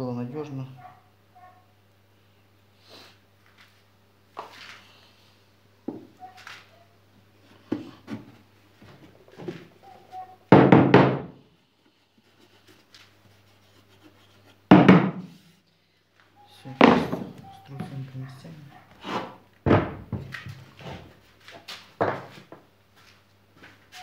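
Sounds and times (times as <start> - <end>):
wooden mallet knocking plywood: 10.5 - 11.4, 14.7 - 15.3.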